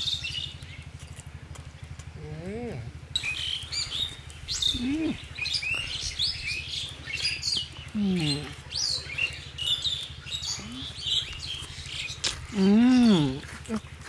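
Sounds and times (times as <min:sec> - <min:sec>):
small birds chirping: 0:00.0 - 0:14.0
steady low hum: 0:00.0 - 0:14.0
low voice sounds: 0:04.7 - 0:05.3, 0:07.9 - 0:08.6.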